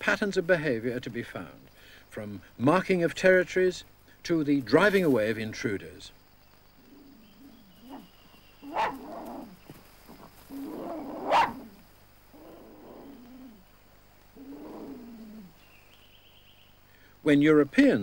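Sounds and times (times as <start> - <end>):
dingoes snarling: 6.8 - 15.7.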